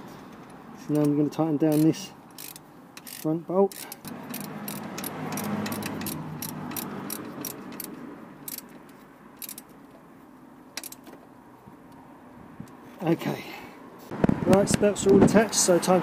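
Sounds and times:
socket ratchet clicking: 1.0 - 9.7, 10.8 - 11.2.

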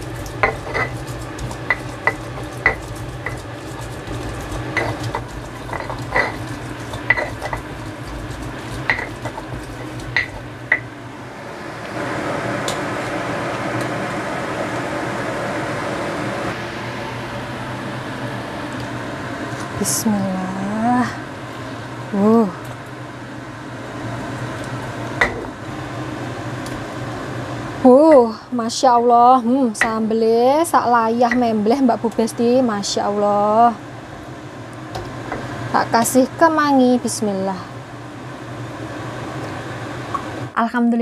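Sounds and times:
pestle grinding in stone mortar: 0.0 - 10.8.

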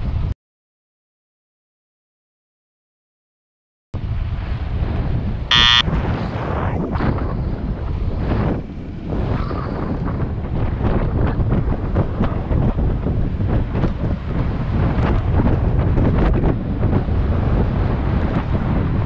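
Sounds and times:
wind buffeting microphone: 4.0 - 19.0
short high-pitched beep: 5.5 - 5.8.

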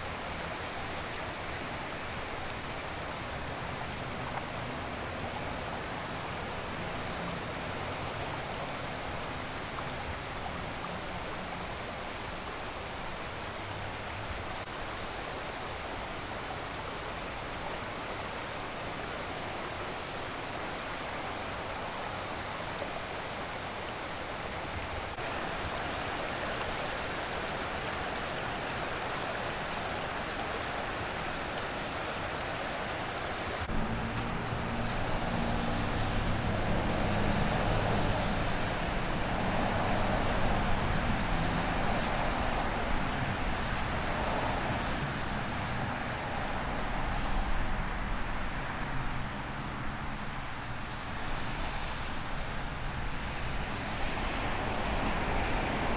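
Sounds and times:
rushing floodwater: 0.0 - 55.9
traffic engine hum: 24.0 - 55.9.

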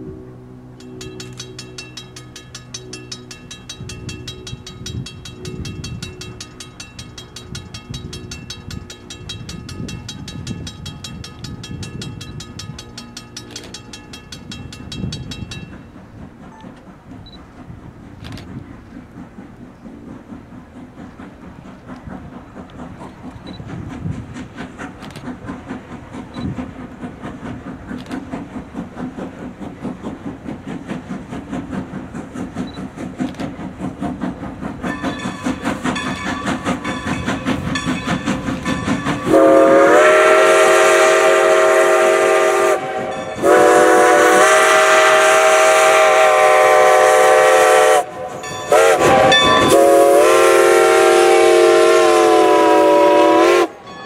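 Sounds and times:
steam locomotive exhaust beating: 0.0 - 54.0
steam whistle blasts: 39.2 - 53.8.

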